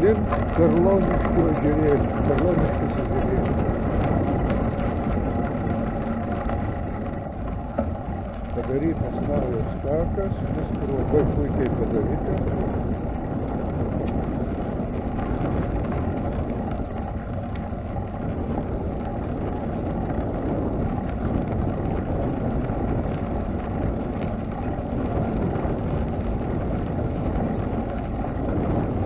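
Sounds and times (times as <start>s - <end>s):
tyres rolling on gravel: 0.0s - 29.0s
wind rumble on microphone: 0.0s - 29.0s.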